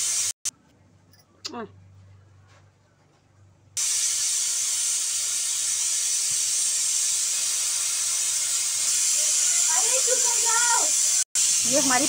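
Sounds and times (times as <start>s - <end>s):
pressure cooker whistling steam: 0.0s - 0.4s, 3.8s - 12.0s.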